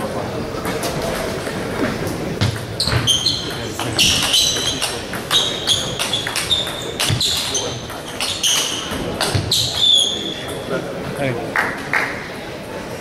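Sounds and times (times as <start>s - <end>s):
table tennis balls clicking: 2.4s - 10.6s.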